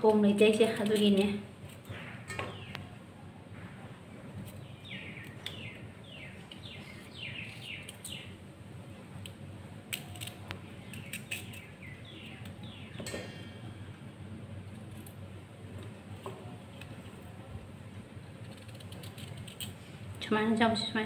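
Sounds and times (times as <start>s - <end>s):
bird chirping: 1.9s - 3.0s, 4.5s - 8.4s, 10.8s - 13.1s.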